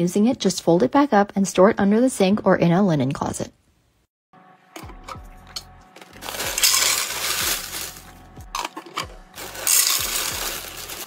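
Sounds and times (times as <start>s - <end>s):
cereal clattering into plastic: 6.0s - 11.0s.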